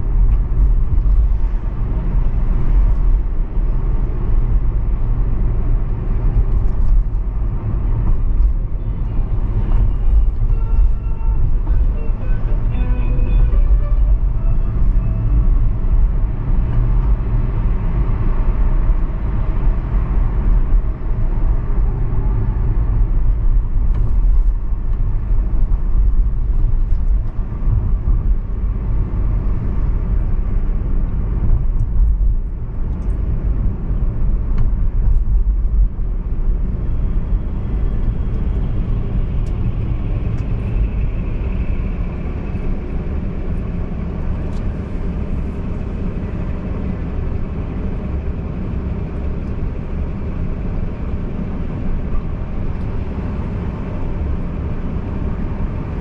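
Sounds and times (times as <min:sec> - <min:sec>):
car engine and road noise: 0:00.0 - 0:56.0.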